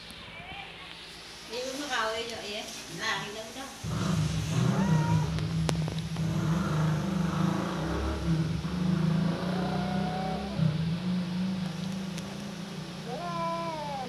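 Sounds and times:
cat growling: 0:03.8 - 0:14.0
faint cat yowl: 0:04.5 - 0:05.4, 0:09.5 - 0:10.8, 0:13.0 - 0:14.0.

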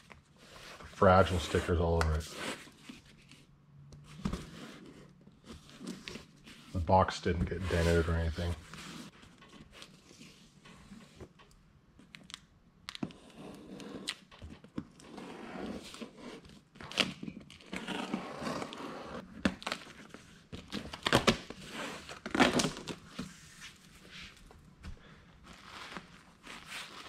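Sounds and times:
packing tape ripping off cardboard: 0:20.6 - 0:23.0.

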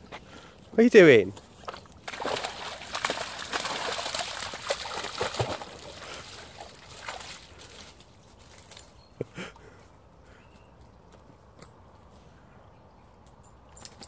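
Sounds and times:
dog splashing through stream: 0:01.5 - 0:08.8.

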